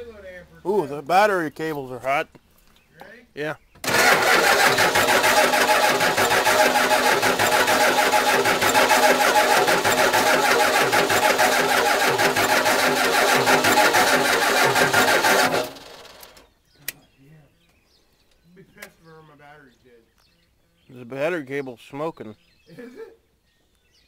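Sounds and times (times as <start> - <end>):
starter cranking engine: 3.8 - 16.5.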